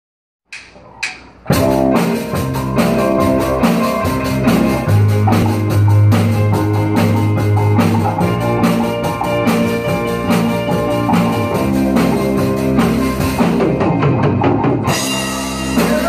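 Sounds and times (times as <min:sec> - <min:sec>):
drumstick clicks: 0:00.5 - 0:01.4
rock band playing: 0:00.6 - 0:16.0.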